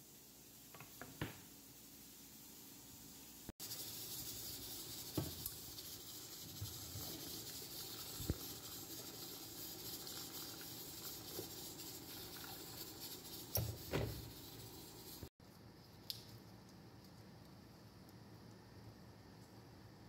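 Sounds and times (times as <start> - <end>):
water pouring into a pot: 6.6 - 13.5.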